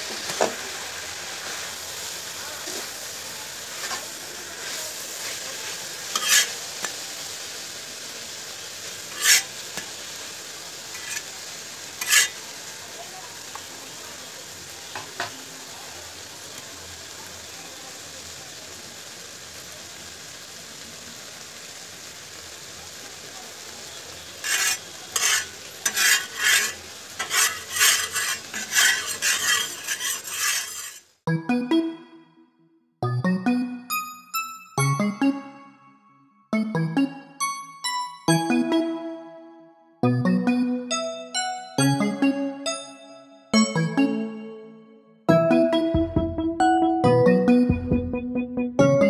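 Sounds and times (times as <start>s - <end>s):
frying sizzle on iron pan: 0.0s - 31.2s, 43.6s - 44.3s
spatula scraping and tapping pan: 0.1s - 0.6s, 3.8s - 7.0s, 9.1s - 9.9s, 10.9s - 11.3s, 12.0s - 12.4s, 24.4s - 31.1s.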